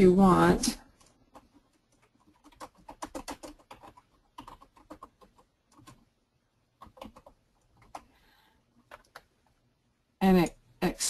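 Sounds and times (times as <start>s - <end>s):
typing on computer keyboard: 0.9s - 6.1s, 6.7s - 8.2s, 8.8s - 9.3s.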